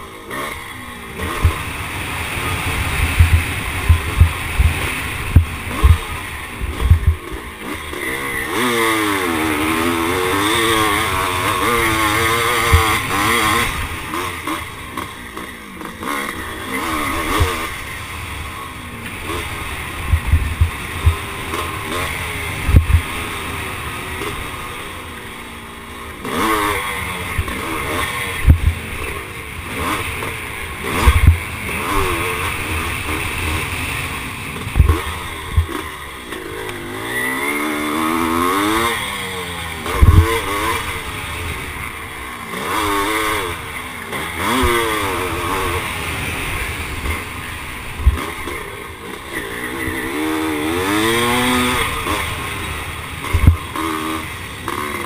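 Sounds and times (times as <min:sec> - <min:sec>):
motocross engine revving: 0:00.0 - 0:55.0
low thumps: 0:03.0 - 0:07.2, 0:20.0 - 0:21.2.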